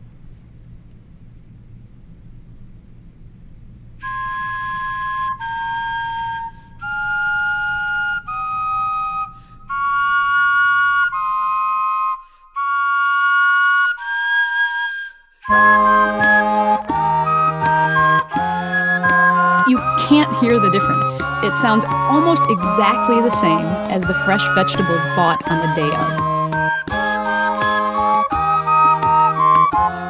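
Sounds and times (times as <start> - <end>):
carrot recorders playing melody: 4.0 - 30.0
vegetable horns: 15.4 - 30.0.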